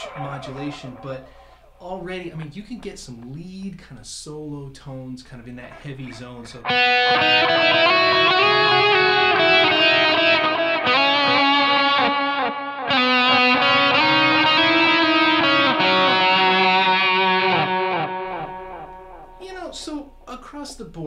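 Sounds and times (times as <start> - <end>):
distorted electric guitar: 0.0 - 1.7, 5.7 - 19.4.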